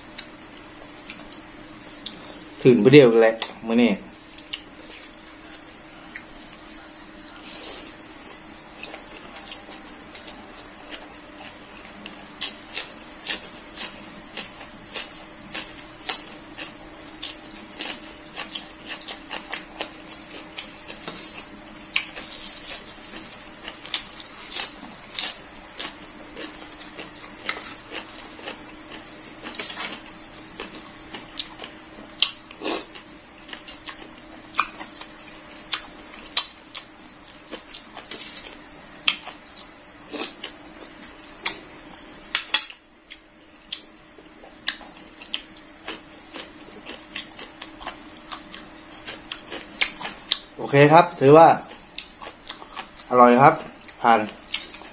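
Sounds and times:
crickets chirring: 0:00.0 - 0:54.9
person chewing: 0:02.0 - 0:02.3, 0:07.4 - 0:50.6, 0:51.7 - 0:53.1, 0:53.8 - 0:54.9.

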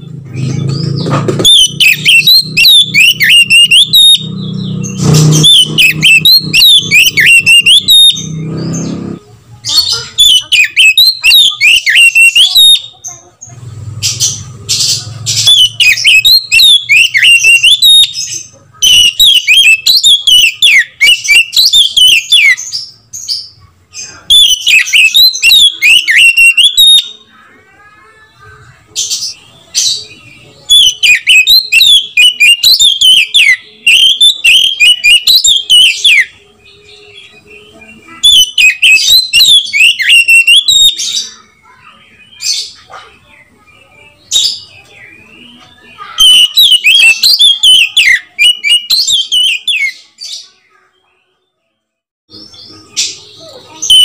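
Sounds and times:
bird singing whistled phrases: 0:01.4 - 0:08.8, 0:10.2 - 0:13.0, 0:15.3 - 0:23.0, 0:24.0 - 0:27.3, 0:29.3 - 0:42.7, 0:44.3 - 0:50.5, 0:52.3 - 0:54.0.

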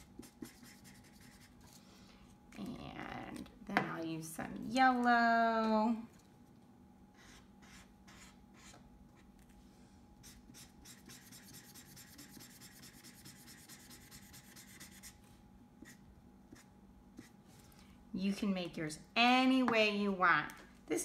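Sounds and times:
marker scratching on paper: 0:00.0 - 0:01.5, 0:07.2 - 0:08.8, 0:10.2 - 0:15.2.

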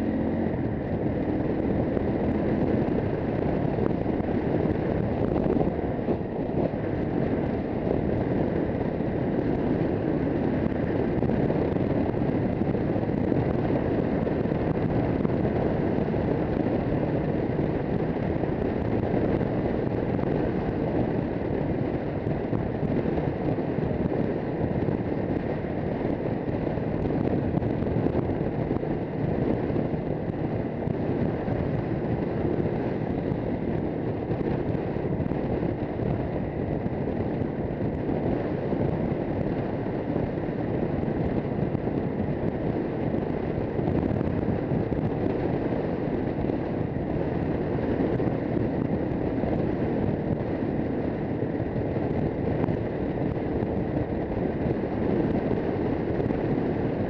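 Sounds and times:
motorcycle engine cruising: 0:00.0 - 0:57.0
wind noise on microphone: 0:00.0 - 0:57.0.

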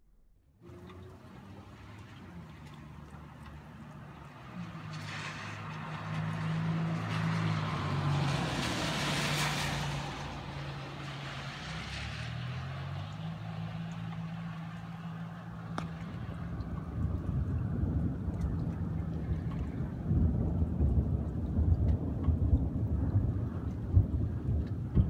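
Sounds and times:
motor vehicle passing: 0:00.6 - 0:20.1.

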